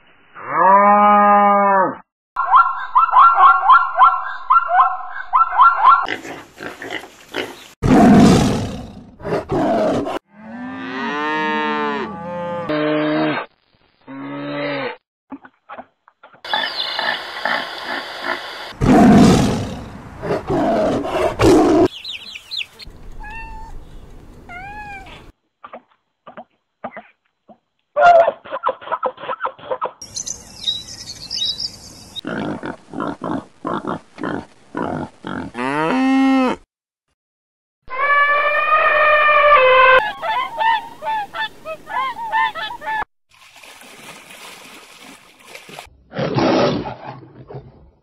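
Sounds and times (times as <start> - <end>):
animal roars and growls: 7.8 - 13.5, 18.8 - 21.9, 46.1 - 48.0.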